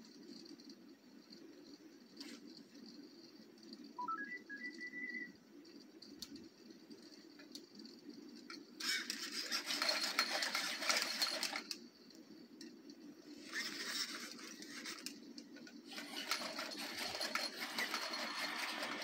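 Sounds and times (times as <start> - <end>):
faint low hum: 0.0 - 9.7
robot motors whirring: 8.8 - 11.7, 13.3 - 15.2, 15.9 - 19.0.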